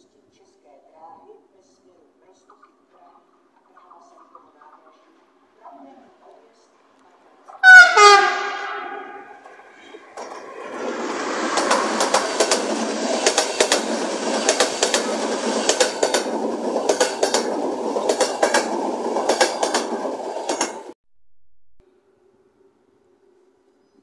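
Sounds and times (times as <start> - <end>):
train rushing past: 7.6 - 21.0
wheels clattering over rail joints: 9.3 - 20.9.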